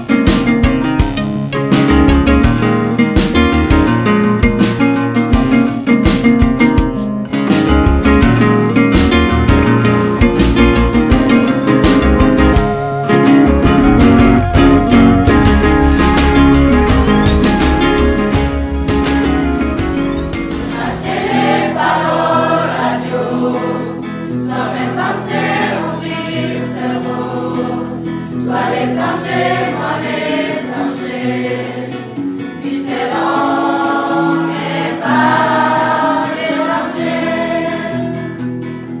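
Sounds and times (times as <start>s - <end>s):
held accompanying chords: 0.0s - 38.2s
group singing in chorus: 11.4s - 38.4s.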